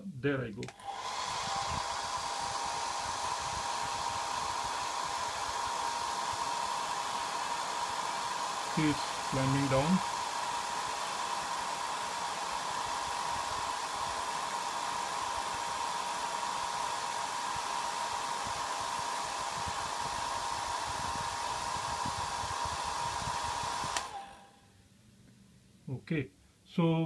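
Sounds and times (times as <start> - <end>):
hair dryer running: 0.7 - 24.6.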